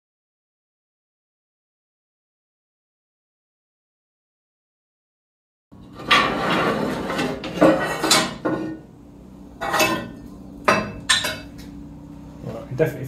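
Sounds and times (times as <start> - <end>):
sheet metal clattering and scraping: 5.8 - 8.8, 9.6 - 10.2.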